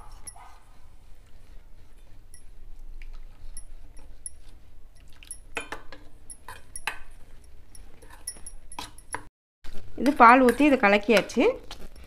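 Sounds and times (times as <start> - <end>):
spoon clinking against metal bowl: 3.5 - 9.3, 10.0 - 12.0.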